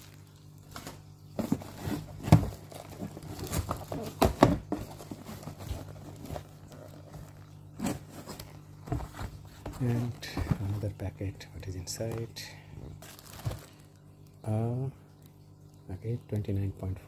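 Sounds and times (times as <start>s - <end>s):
tissue paper rustling: 0.0s - 10.8s, 13.0s - 13.9s
faint low hum: 0.0s - 17.0s
cardboard scuffing and knocking: 0.8s - 10.8s, 13.0s - 13.7s.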